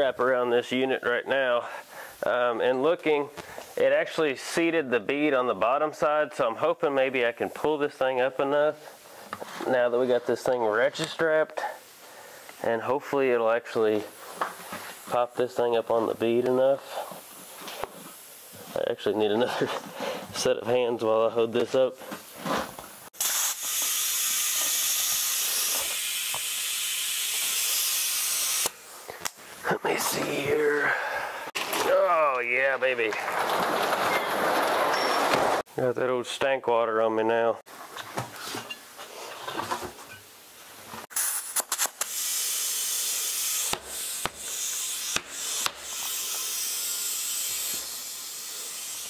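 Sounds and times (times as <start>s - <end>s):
compressed air hissing into tire: 23.1s - 29.1s, 41.1s - 49.0s
handling noise: 31.6s - 35.6s.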